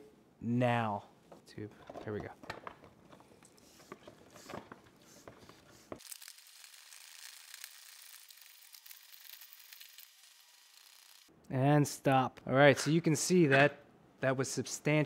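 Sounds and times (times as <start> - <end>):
plastic pouch crinkling: 4.2 - 11.1
crackly hiss with small ticks: 5.0 - 11.3.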